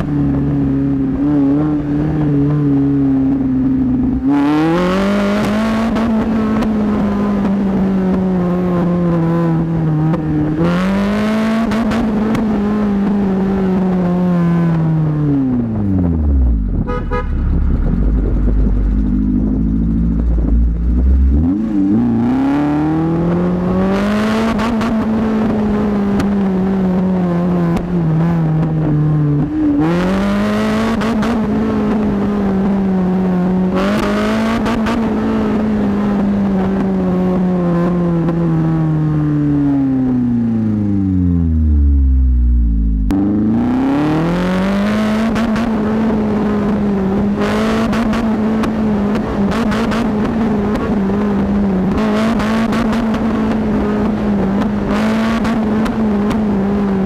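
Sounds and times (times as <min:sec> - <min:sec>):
car engine revving: 0:00.0 - 0:57.0
exhaust popping: 0:15.5 - 0:22.4.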